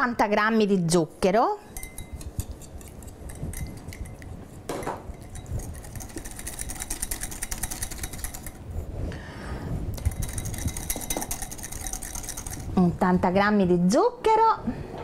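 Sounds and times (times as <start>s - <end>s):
whisk clicking against glass bowl: 1.7s - 8.6s, 10.0s - 12.8s.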